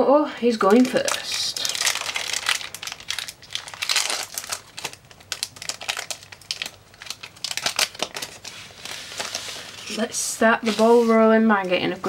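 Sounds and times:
foil wrapper crinkling while torn: 0:00.6 - 0:10.1.

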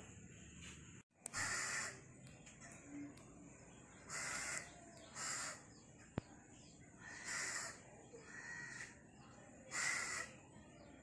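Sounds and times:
crow cawing: 0:01.3 - 0:02.1, 0:04.1 - 0:05.8, 0:07.0 - 0:09.0, 0:09.7 - 0:10.4.

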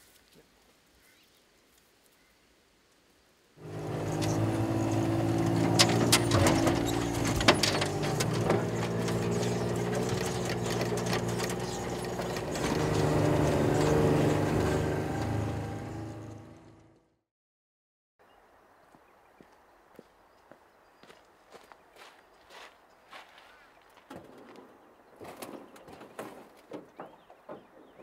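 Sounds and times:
engine running steadily: 0:03.6 - 0:17.0.

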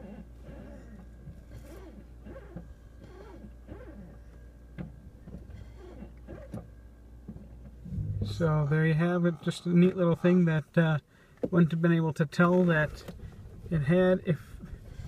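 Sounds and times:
brake pedal squeaking: 0:00.0 - 0:08.6
low steady hum: 0:00.0 - 0:15.0.

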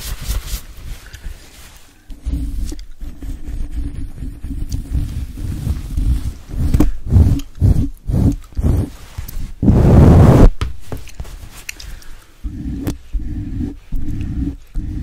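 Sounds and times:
towel rubbing against microphone: 0:00.0 - 0:10.5.

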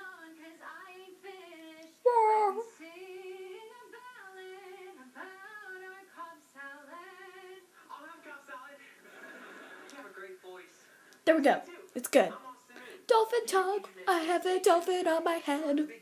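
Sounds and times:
girl singing: 0:00.0 - 0:07.7, 0:13.1 - 0:15.9.

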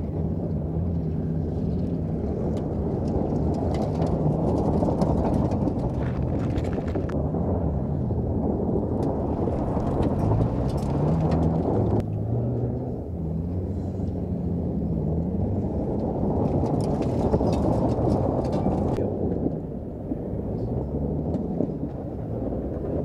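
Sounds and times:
ticks of gravel: 0:01.7 - 0:07.2
pickup engine revving: 0:07.0 - 0:19.0.

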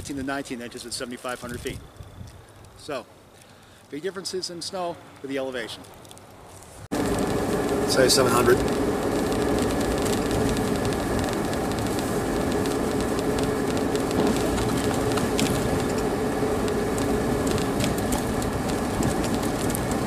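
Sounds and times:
engine and tyre rumble: 0:05.9 - 0:20.0.

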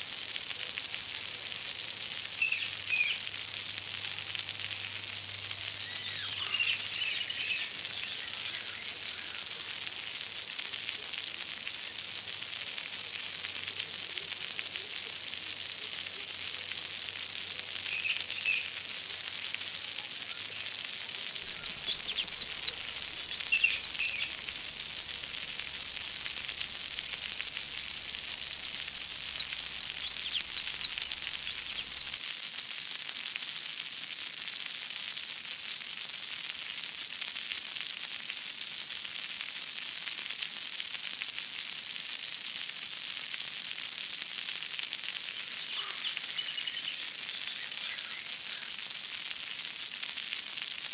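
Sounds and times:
steady hissing water: 0:00.0 - 0:50.9
short bubbly chirps: 0:20.2 - 0:32.2.

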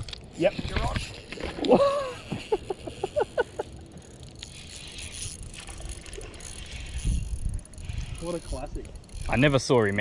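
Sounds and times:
man laughing: 0:01.6 - 0:04.0.

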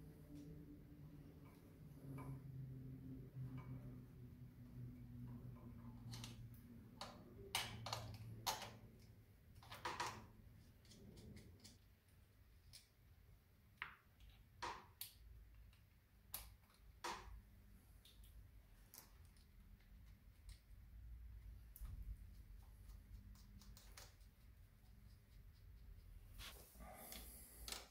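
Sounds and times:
faint low hum: 0:00.0 - 0:14.5.

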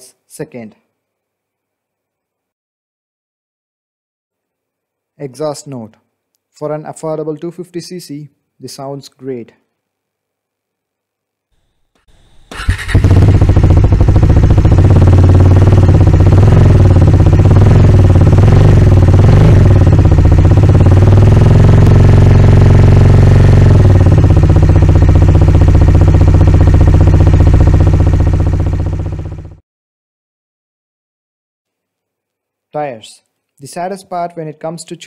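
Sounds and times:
motorcycle engine and exhaust: 0:11.8 - 0:29.6.

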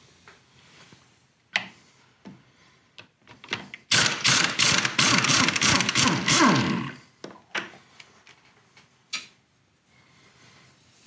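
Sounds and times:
ratchet wrench ratcheting: 0:03.9 - 0:06.6.

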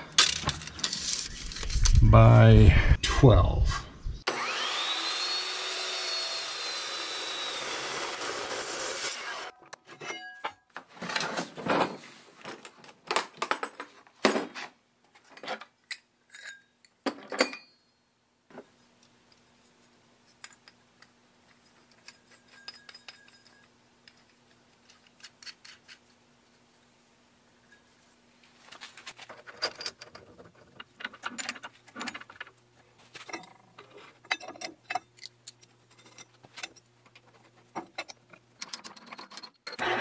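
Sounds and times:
chop saw cutting steel: 0:04.3 - 0:09.5
light metal clinks: 0:20.3 - 0:24.3.

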